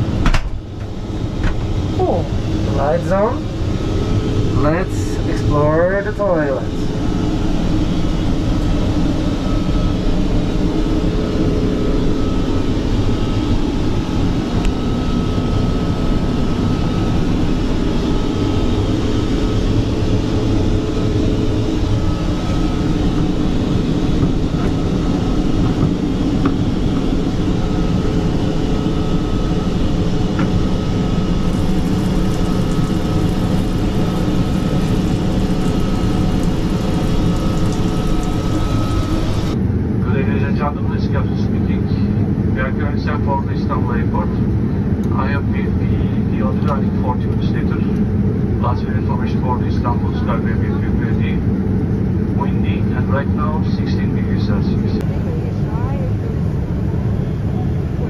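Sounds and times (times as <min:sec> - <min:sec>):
aircraft engine noise: 0:00.0 - 0:58.0
faint hum: 0:00.0 - 0:58.0
airflow rush: 0:30.1 - 0:39.6.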